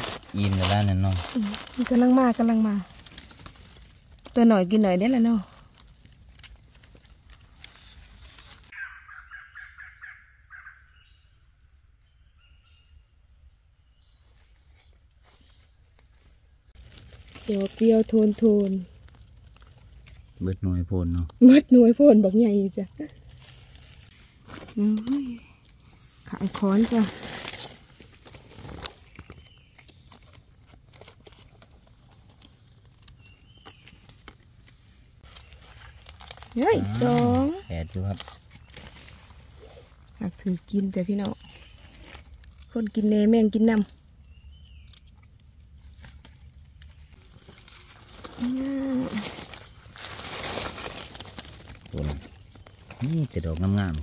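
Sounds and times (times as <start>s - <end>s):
leaf litter rustling: 0.0s - 8.8s, 14.4s - 42.8s, 45.6s - 54.0s
bird harsh repeated calls: 8.7s - 11.3s.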